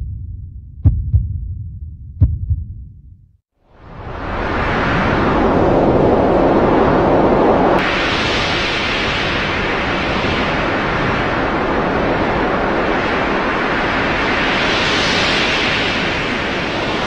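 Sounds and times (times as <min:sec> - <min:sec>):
strong wind on microphone: 0:03.7 - 0:17.0.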